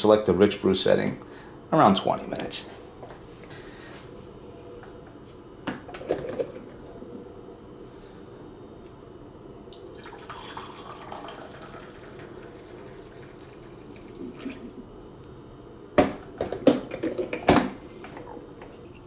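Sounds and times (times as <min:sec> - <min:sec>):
coffee pouring into a mug: 0:09.6 - 0:14.8.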